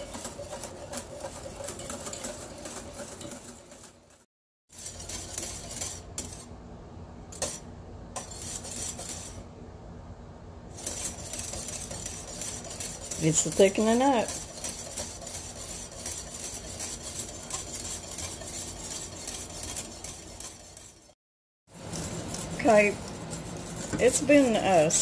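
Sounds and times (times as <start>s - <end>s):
spoon stirring in saucepan: 0.0s - 6.6s, 7.3s - 9.4s, 10.7s - 25.0s.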